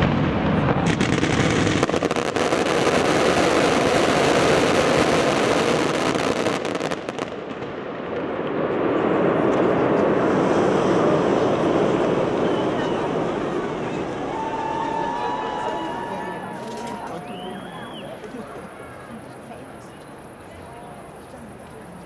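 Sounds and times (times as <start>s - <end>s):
fireworks crackling and bangs: 0.0s - 22.0s
steady rushing noise: 6.9s - 16.1s.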